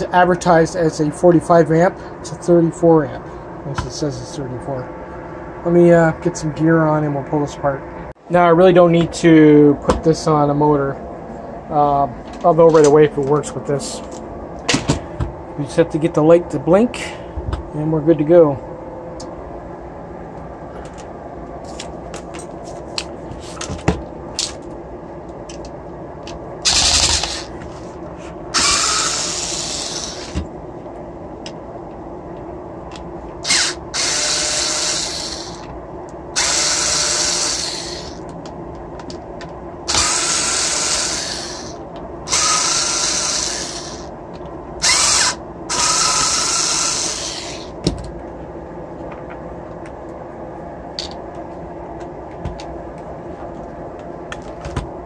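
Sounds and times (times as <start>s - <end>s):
electric screwdriver whining: 26.6s - 27.5s, 28.6s - 30.4s, 33.4s - 35.7s, 36.4s - 38.2s, 39.9s - 44.1s, 44.8s - 47.7s.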